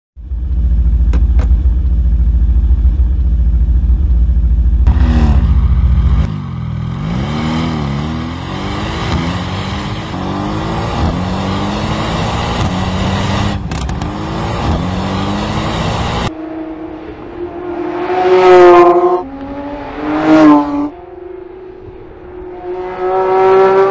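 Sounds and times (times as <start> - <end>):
sports car engine revving and accelerating: 4.8 - 23.9.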